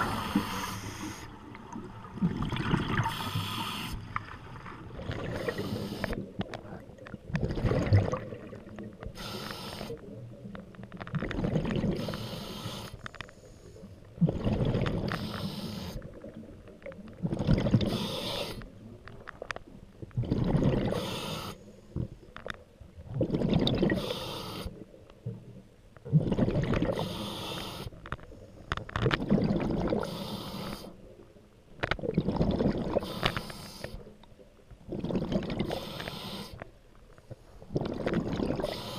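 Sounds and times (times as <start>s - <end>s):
regulator inhale hiss: 0.0s - 1.4s, 3.0s - 4.1s, 5.4s - 6.2s, 9.2s - 10.0s, 12.0s - 14.0s, 15.1s - 16.0s, 17.9s - 18.7s, 20.9s - 22.0s, 24.0s - 24.8s, 26.9s - 28.0s, 30.0s - 31.0s, 33.0s - 34.1s, 35.7s - 36.7s, 38.6s - 38.9s
exhaled bubbles burbling: 1.5s - 3.3s, 4.6s - 9.0s, 11.1s - 12.1s, 14.2s - 15.2s, 16.0s - 18.1s, 20.0s - 21.0s, 23.0s - 24.0s, 26.0s - 27.1s, 29.0s - 30.1s, 32.0s - 33.1s, 34.8s - 35.9s, 37.7s - 38.9s.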